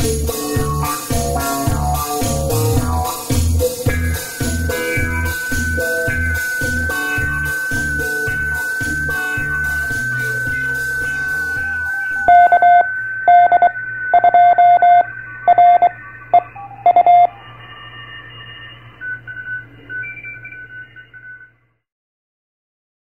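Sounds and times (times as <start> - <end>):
intro music: 0.0 - 21.3
morse code tone: 3.1 - 21.6
radio receiver whistle and hum: 3.8 - 21.8
faint beeps and tones: 4.2 - 21.8.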